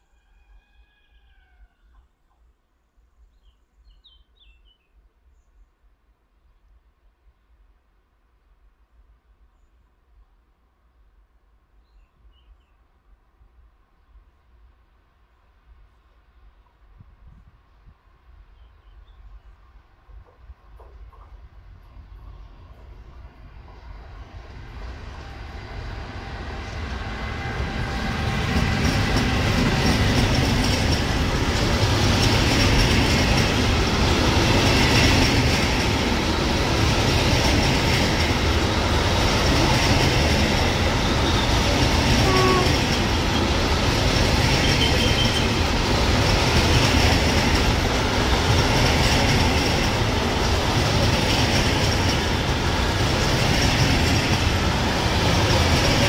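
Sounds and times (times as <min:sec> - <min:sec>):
train wheels on rails: 0:19.2 - 0:56.0
electric locomotive passing: 0:19.7 - 0:56.0.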